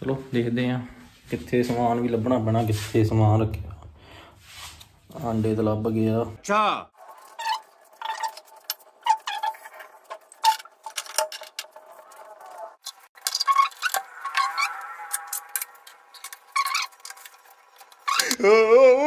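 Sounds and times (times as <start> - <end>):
metal utensils clinking: 7.1 - 18.4.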